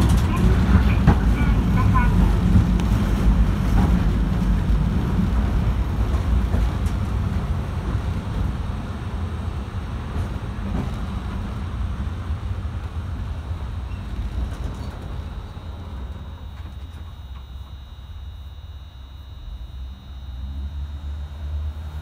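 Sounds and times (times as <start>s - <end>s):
streetcar motors and wheels rumbling: 0.0s - 18.2s, 19.2s - 22.0s.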